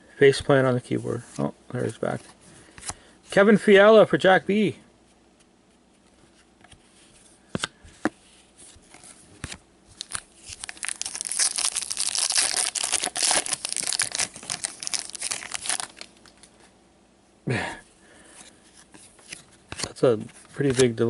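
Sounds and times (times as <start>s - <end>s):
foil wrapper tearing and crinkling: 10.0s - 16.5s.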